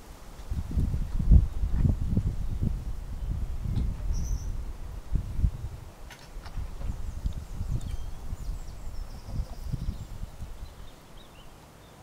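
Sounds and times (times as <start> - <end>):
wind buffeting microphone: 0.0 - 11.6
faint bird chirps: 3.2 - 4.6, 6.9 - 12.0.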